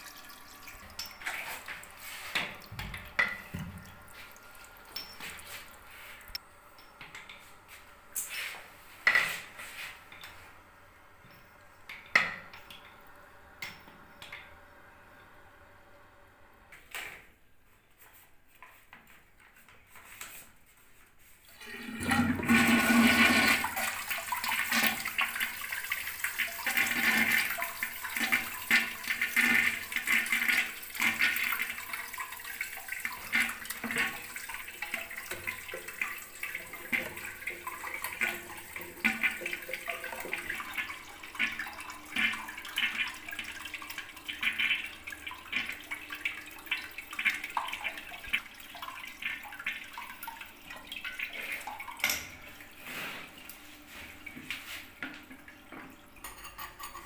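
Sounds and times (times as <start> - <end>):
water trickling: 0.0 - 7.4, 23.6 - 56.9
toilet flushing: 0.0 - 17.3, 21.2 - 57.0.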